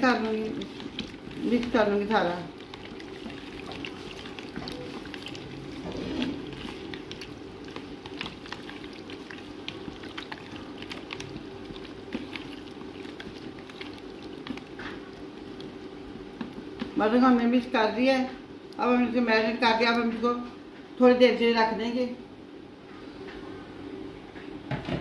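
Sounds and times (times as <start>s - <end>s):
hands squishing wet meat: 0.0s - 17.1s.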